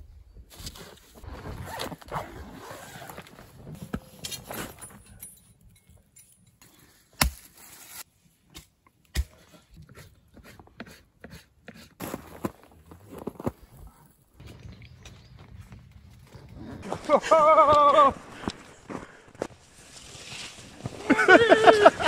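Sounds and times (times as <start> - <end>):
shovel scraping through snow: 12.0 - 13.5, 19.7 - 21.2.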